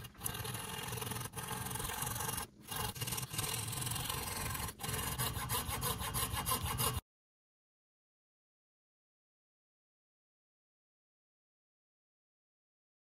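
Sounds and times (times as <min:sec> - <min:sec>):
hand saw cutting wood: 0:00.0 - 0:07.0.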